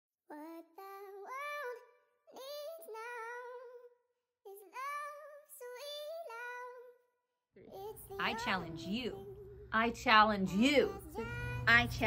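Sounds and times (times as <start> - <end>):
high voice singing: 10.5 - 12.0.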